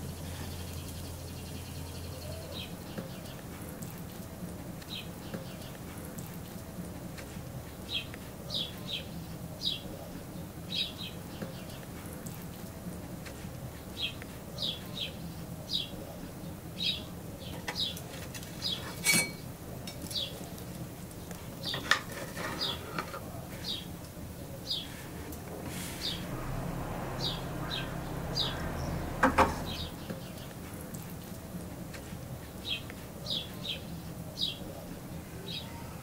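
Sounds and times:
songbird chirping: 0.0 - 35.9.

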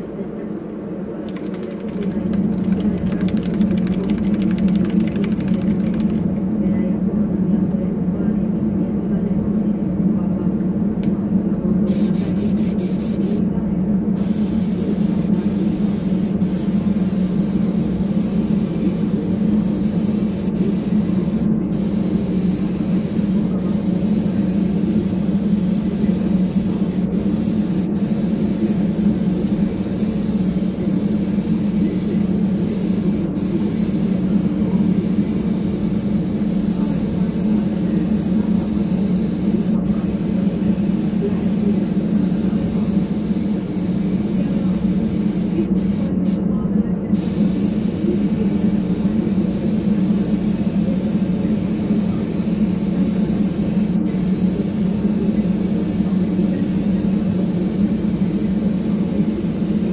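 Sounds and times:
low machine hum: 0.0 - 59.9
spray gun hissing: 11.9 - 13.4, 14.2 - 46.4, 47.2 - 59.9.

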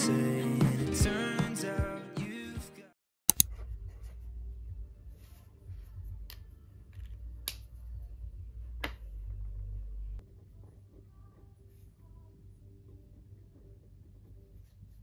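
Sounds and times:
background music: 0.0 - 3.0.

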